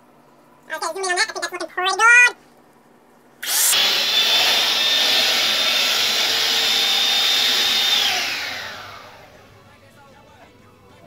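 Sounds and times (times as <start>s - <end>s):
electric hand mixer whine: 3.4s - 9.6s.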